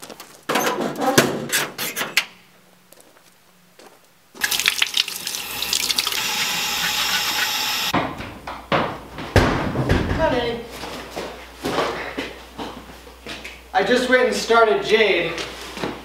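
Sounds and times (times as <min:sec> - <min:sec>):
hose water pouring into sink: 0:04.4 - 0:07.9.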